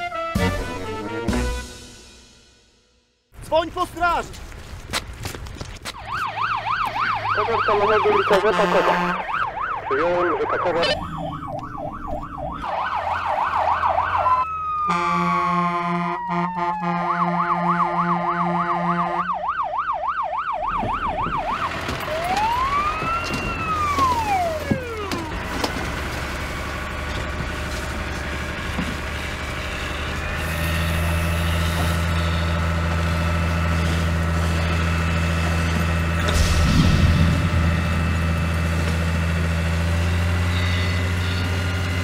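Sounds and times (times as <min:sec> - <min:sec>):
fire engine siren yelp: 0:05.9 - 0:42.0
falling whine: 0:09.2 - 0:14.4, 0:34.5 - 0:41.5
truck engine running: 0:20.3 - 0:42.0.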